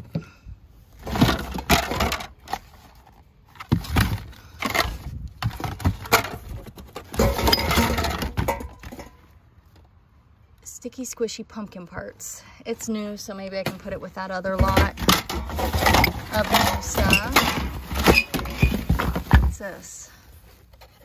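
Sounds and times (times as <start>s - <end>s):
plastic items clattering in box: 1.0s - 9.1s, 14.6s - 19.8s.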